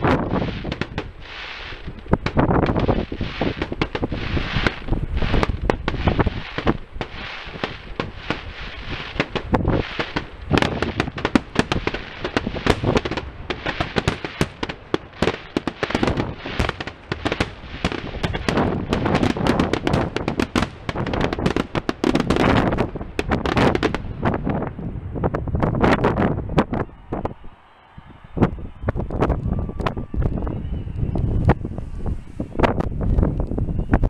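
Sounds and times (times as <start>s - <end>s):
firework shells bursting: 0.0s - 24.4s.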